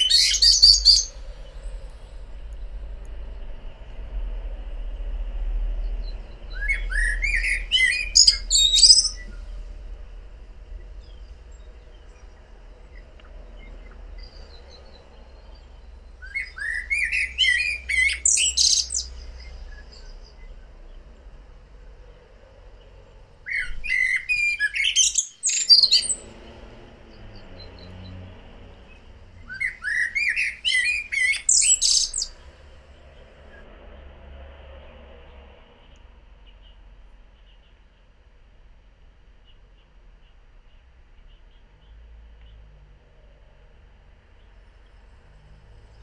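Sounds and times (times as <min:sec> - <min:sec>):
blackbird singing: 0:00.0 - 0:01.8, 0:05.9 - 0:09.6, 0:10.8 - 0:21.0, 0:22.8 - 0:33.6.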